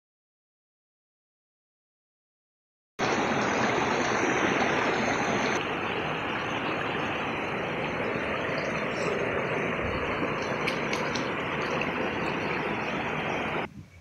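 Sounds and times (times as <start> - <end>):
river water rushing: 3.0 - 13.7.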